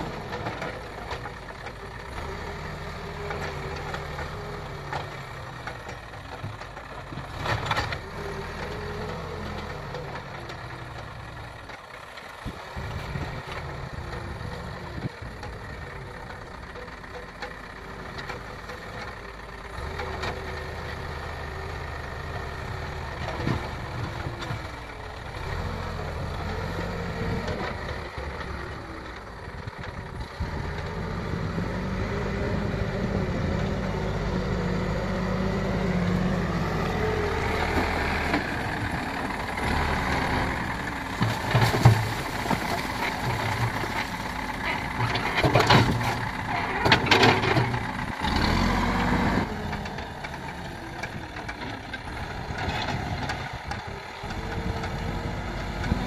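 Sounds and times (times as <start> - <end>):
diesel engine under load: 0.0 - 56.0.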